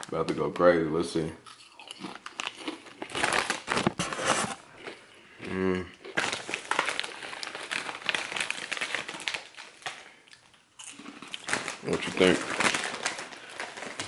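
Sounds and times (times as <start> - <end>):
foil chip bag crinkling: 1.7 - 5.0, 6.0 - 14.0.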